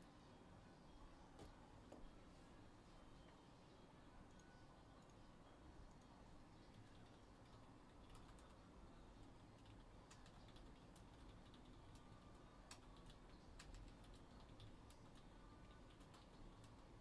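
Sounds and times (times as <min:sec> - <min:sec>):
faint irregular clicks: 0:06.7 - 0:08.6, 0:09.3 - 0:16.9.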